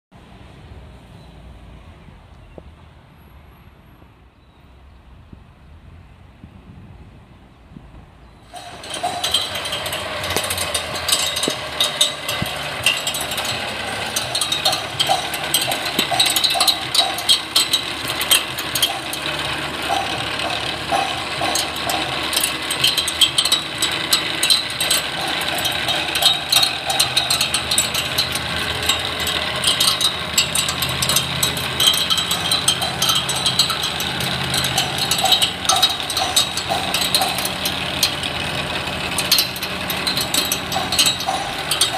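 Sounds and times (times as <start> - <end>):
mower reel ticking on motor: 8.4 - 41.9.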